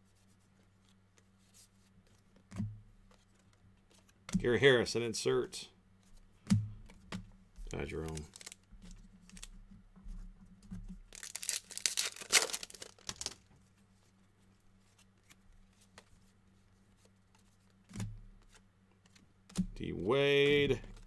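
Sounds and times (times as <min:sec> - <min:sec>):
cards clicking: 0:07.7 - 0:08.6, 0:11.2 - 0:13.4
wrapper being torn open: 0:07.7 - 0:09.5, 0:11.1 - 0:13.4.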